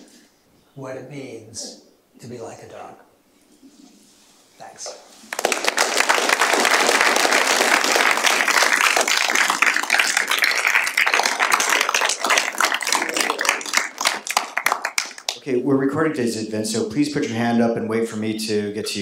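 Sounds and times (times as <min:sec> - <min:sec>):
roomful of people applauding: 0:05.2 - 0:15.4.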